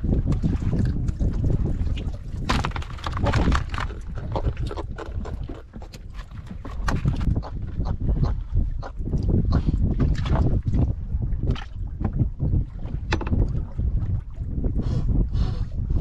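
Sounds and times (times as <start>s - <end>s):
water sounds: 0.0s - 16.0s
wind buffeting microphone: 0.0s - 16.0s
fish knocking in plastic basket: 2.4s - 4.2s.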